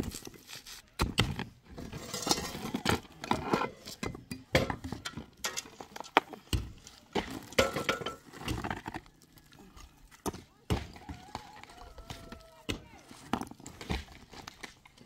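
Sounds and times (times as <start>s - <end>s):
hand tool striking earth: 0.0s - 2.8s, 3.9s - 9.0s.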